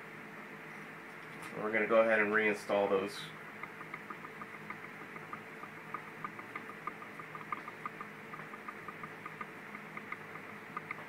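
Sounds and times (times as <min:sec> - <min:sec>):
low hum: 0:00.0 - 0:11.0
screwdriver ticking: 0:03.6 - 0:11.0.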